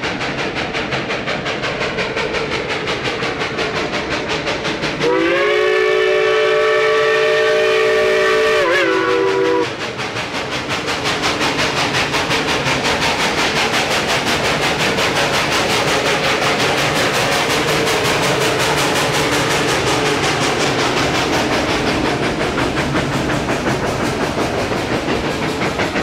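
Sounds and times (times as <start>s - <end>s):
steam locomotive chuffing: 0.0s - 26.0s
steam whistle chord: 5.0s - 9.7s.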